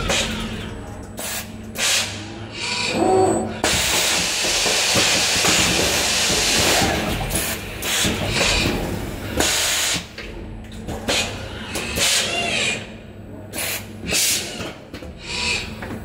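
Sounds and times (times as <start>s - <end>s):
compressed air hissing: 9.4s - 10.1s.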